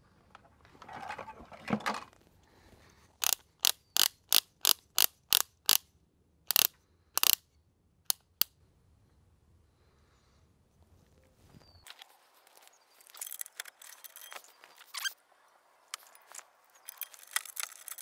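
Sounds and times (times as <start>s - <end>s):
tool handling rustle: 0.7s - 2.3s, 11.9s - 15.2s, 15.9s - 18.0s
torque wrench clicks: 3.2s - 5.8s, 6.5s - 7.4s.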